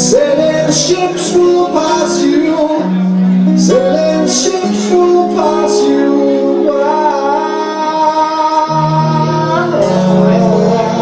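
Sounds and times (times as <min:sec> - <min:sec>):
acoustic guitar: 0:00.0 - 0:11.0
long held melody notes: 0:00.0 - 0:11.0.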